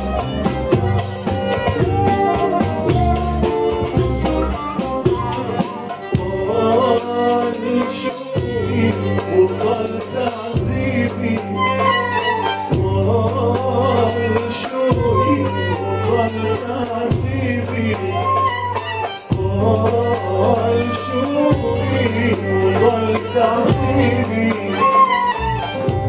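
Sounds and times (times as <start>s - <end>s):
held bass notes: 0.0s - 7.3s
percussion strikes: 0.0s - 26.0s
violin playing ornamented melody: 0.0s - 26.0s.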